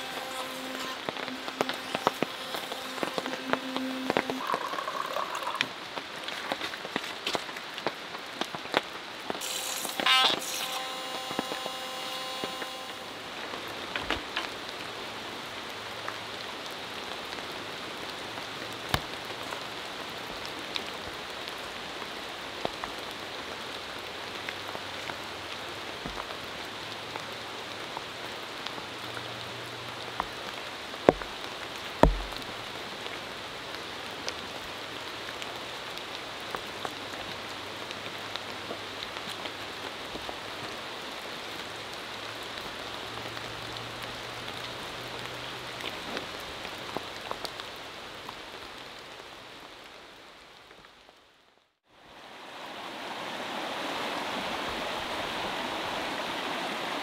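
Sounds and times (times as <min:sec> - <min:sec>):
sharp drips: 0:00.0 - 0:06.5
rain pattering on a tarp: 0:00.0 - 0:57.0
loud sharp taps: 0:32.0 - 0:32.4.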